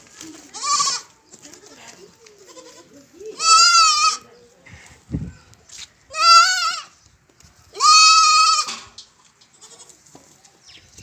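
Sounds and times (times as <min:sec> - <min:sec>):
baby goat bleating: 0:00.1 - 0:04.3, 0:06.1 - 0:06.9, 0:07.7 - 0:08.9, 0:09.5 - 0:10.0.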